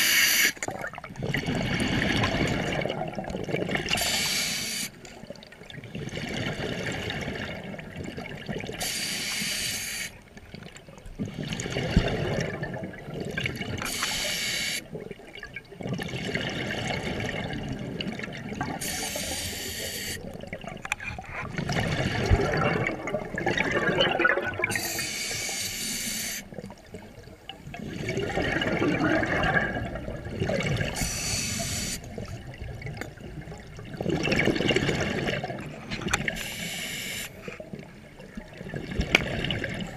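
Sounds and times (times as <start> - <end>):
exhaled bubbles burbling: 0.6 - 4.2, 5.2 - 8.8, 10.5 - 14.0, 14.9 - 19.1, 20.1 - 25.0, 26.5 - 31.4, 32.0 - 36.5, 37.6 - 39.9
regulator hissing inhale: 4.0 - 5.0, 8.8 - 10.2, 13.9 - 14.8, 18.8 - 20.2, 24.8 - 26.5, 31.0 - 32.1, 36.4 - 37.6.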